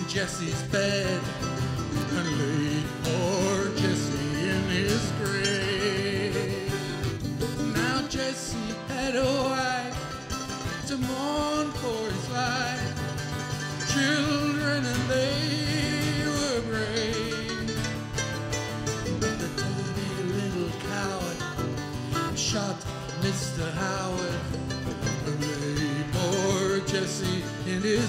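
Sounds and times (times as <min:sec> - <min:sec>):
acoustic guitar: 0:00.0 - 0:28.0
mandolin: 0:00.0 - 0:28.0.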